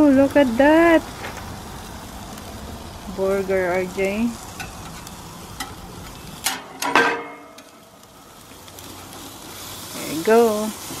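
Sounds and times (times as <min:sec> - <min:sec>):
patties sizzling on a grill: 0:00.0 - 0:11.0
metal spatula clattering on grate: 0:04.6 - 0:05.8, 0:06.4 - 0:07.8.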